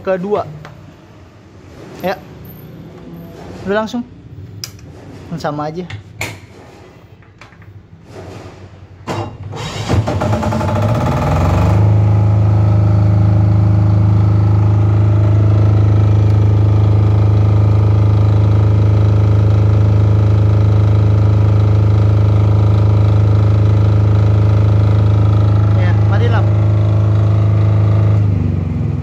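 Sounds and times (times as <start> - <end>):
diesel generator running: 9.5 - 29.0.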